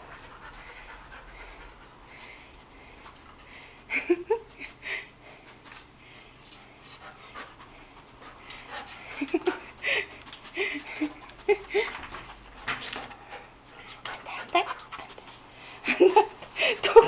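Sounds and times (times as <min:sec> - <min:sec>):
dog sniffing and panting: 0:00.0 - 0:03.8, 0:04.6 - 0:17.0.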